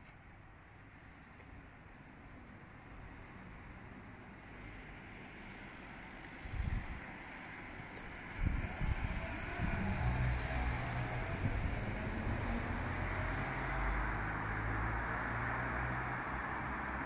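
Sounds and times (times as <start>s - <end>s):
low engine hum: 2.8s - 17.0s
cars driving past: 3.4s - 17.0s.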